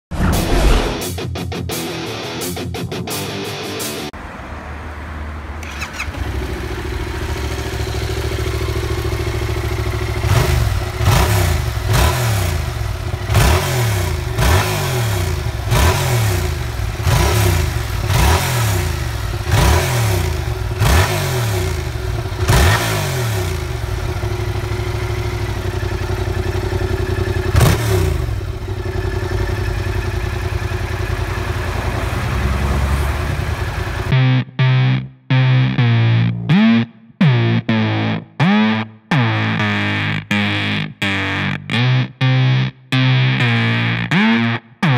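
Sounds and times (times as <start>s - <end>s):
motorcycle engine idling: 5.6s - 34.1s
motorcycle engine revving: 5.6s - 34.2s
motorcycle engine starting: 5.6s - 34.4s.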